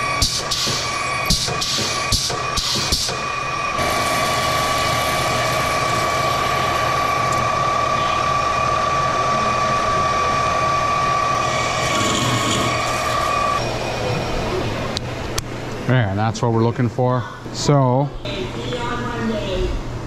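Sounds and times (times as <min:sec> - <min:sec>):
lathe drilling whine: 0:00.0 - 0:15.4
machine hum: 0:00.0 - 0:20.0.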